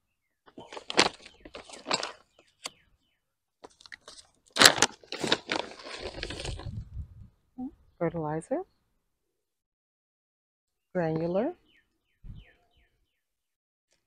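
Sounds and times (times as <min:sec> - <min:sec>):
plastic bag crinkling: 0:00.6 - 0:02.3, 0:03.7 - 0:06.7.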